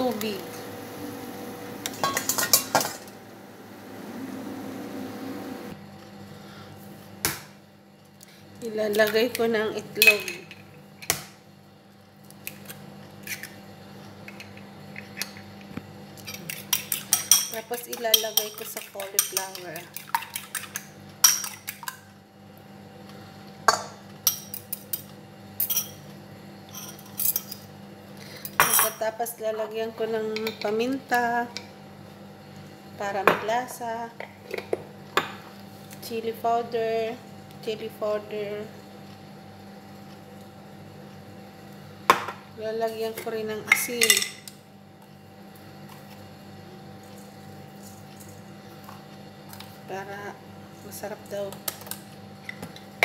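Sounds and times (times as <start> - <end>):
gas stove hissing: 0.0 - 5.8
water boiling: 0.0 - 5.9
steady low hum: 0.0 - 53.0.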